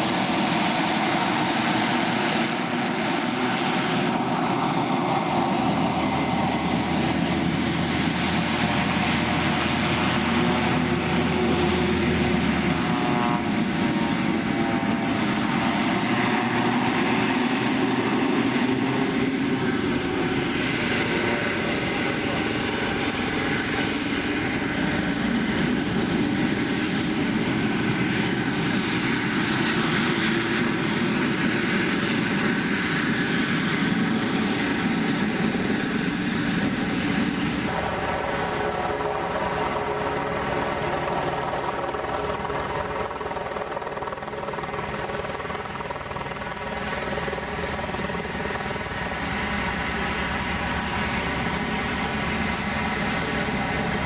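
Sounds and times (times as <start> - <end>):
propeller drone: 0.0 - 54.0
turboprop engine whine: 0.0 - 54.0.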